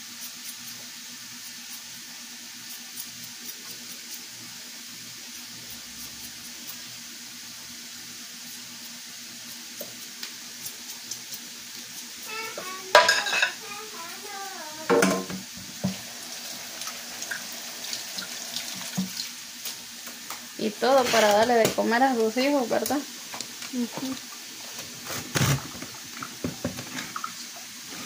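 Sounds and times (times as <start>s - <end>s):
potato peeler scraping: 2.6s - 4.4s, 20.8s - 22.3s
dishes clattering: 12.9s - 13.6s, 14.9s - 15.5s.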